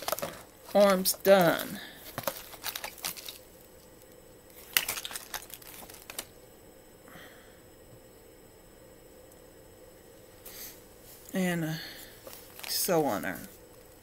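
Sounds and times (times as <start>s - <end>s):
handling rustling and clicks: 0.0s - 3.9s, 4.5s - 6.3s.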